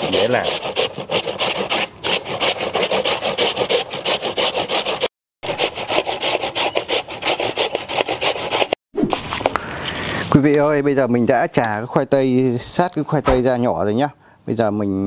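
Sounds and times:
potato grated on metal grater: 0.0s - 8.8s.

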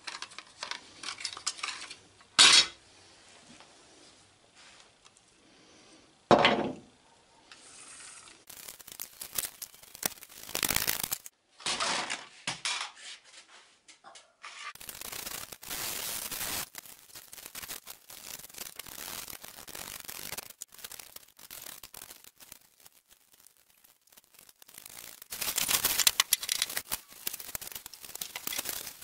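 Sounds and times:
tape rustling and rubbing: 8.0s - 11.3s, 14.4s - 29.0s.

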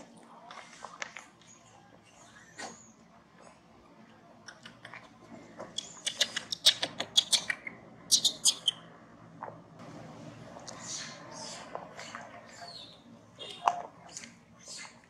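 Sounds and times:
infant monkey squeaking: 5.8s - 8.8s.

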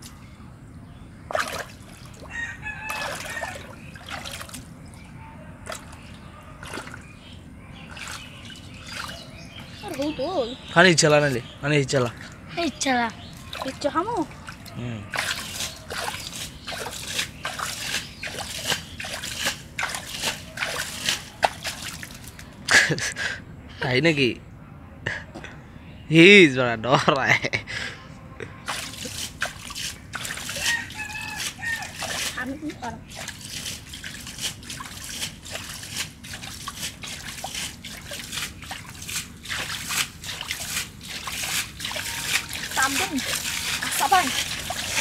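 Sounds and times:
hand splashing in muddy water: 1.3s - 2.2s, 14.4s - 22.4s, 33.1s - 45.0s.

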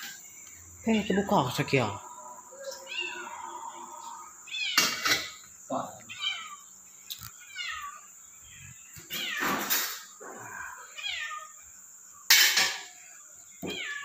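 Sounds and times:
cat meowing: 2.6s - 5.4s, 6.0s - 6.7s, 7.4s - 8.1s, 9.1s - 11.6s, 13.6s - 14.0s.

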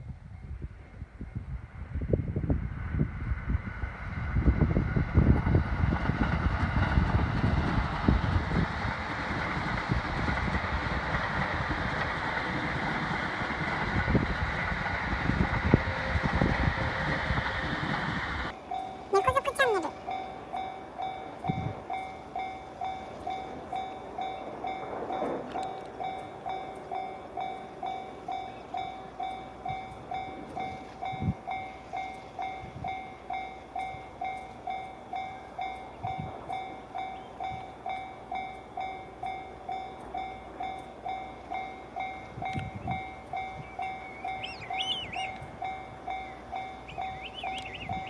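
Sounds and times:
freight train running: 0.0s - 48.0s
level-crossing alarm ringing: 18.6s - 24.9s, 26.1s - 48.0s.

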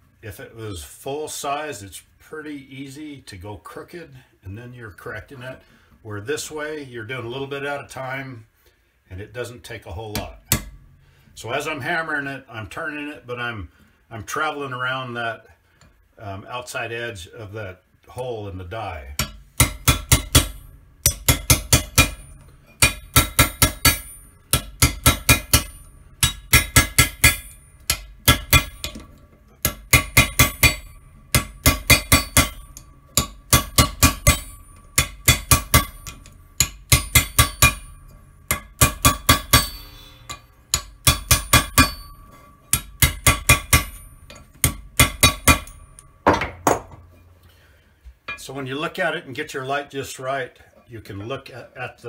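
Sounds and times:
hammer ringing on steel punch: 10.5s - 11.0s, 19.2s - 46.9s.

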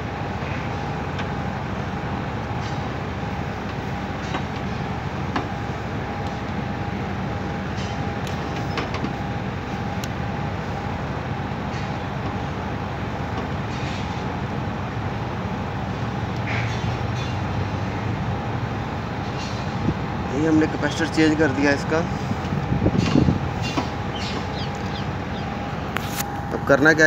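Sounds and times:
mechanical rumble: 14.8s - 27.0s.

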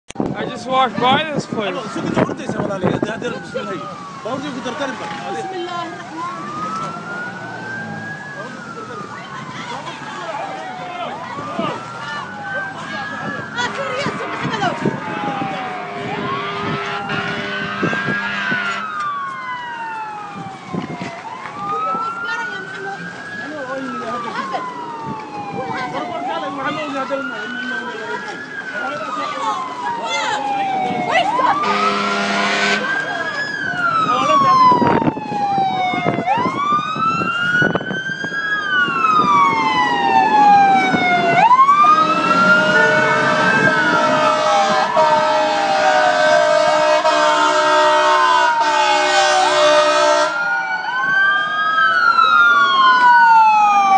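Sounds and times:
emergency siren wailing: 0.1s - 53.9s
steady horn-like tone: 14.0s - 18.9s, 31.6s - 32.9s, 41.9s - 50.4s.

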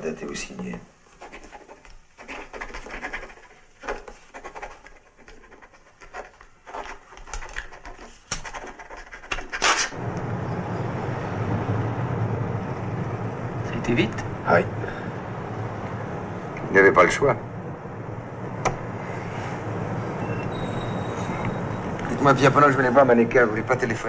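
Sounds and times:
pens scratching on paper: 1.1s - 10.0s
car engine and road noise: 9.9s - 24.0s.

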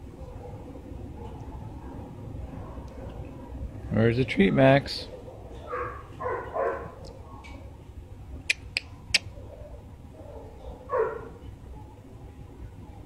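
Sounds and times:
sharp clicks: 8.5s - 9.3s.

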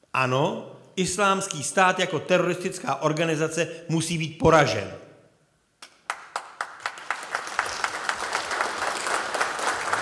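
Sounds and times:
audience applauding: 6.0s - 10.0s.

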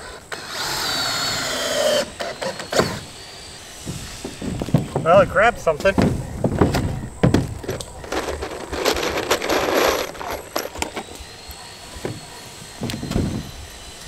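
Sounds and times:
scraping on metal roof: 3.7s - 11.1s
boots knocking on metal roof: 3.8s - 7.8s.

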